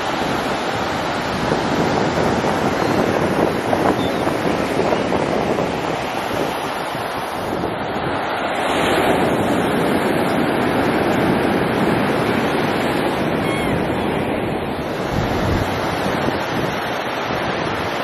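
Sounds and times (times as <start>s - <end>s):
small waves breaking on beach: 0.0s - 18.0s
wind buffeting microphone: 0.0s - 18.0s
gull cry: 13.4s - 13.9s.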